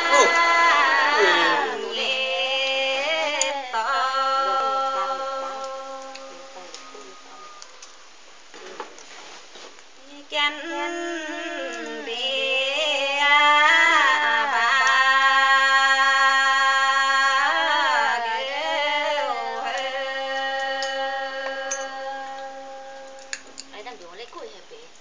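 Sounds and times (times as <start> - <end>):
women singing unaccompanied: 0.0 - 6.9, 10.0 - 24.3.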